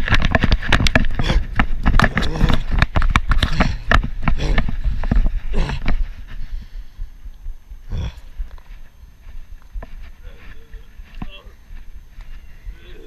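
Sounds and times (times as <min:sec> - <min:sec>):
running footfalls on grass: 0:00.0 - 0:13.0
person breathing and crying out: 0:05.4 - 0:06.0.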